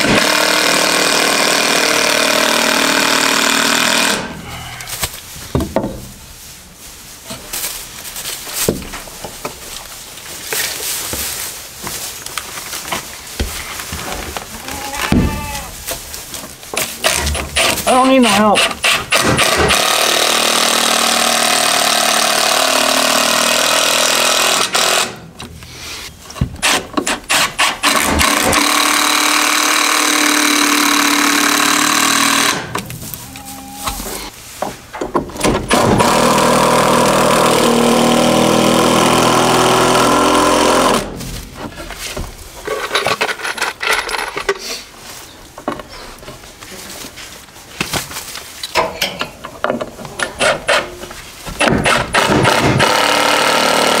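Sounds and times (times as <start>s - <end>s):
power tool cutting wood: 0.0s - 4.5s, 18.4s - 25.2s, 26.6s - 34.3s, 35.7s - 41.2s, 51.6s - 54.0s.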